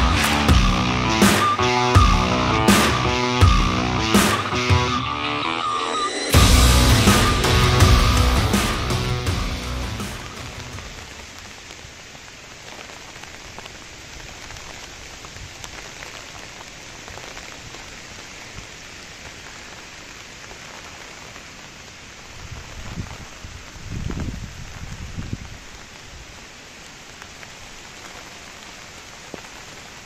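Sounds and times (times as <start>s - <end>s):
rain on tent flysheet: 0.0s - 30.0s
low rumble: 6.3s - 11.2s.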